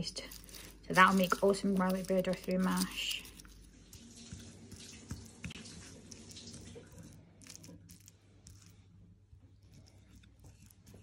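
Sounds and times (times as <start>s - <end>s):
fork tines scraping board: 0.0s - 3.7s
fork mashing garlic: 0.0s - 8.9s.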